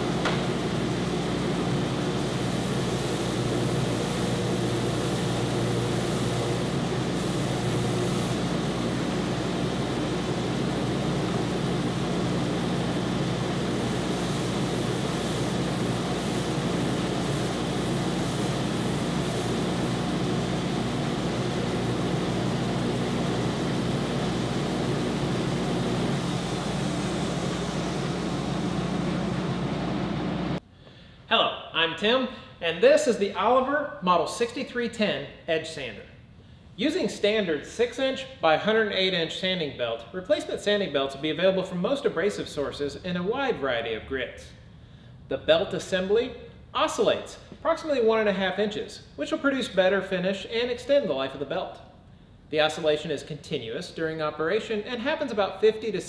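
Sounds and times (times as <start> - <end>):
belt sander motor humming: 0.0 - 30.6.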